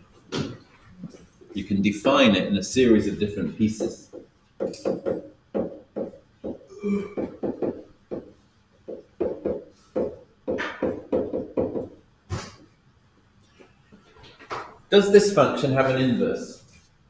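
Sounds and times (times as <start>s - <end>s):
uneven tapping knocks: 3.7s - 12.0s.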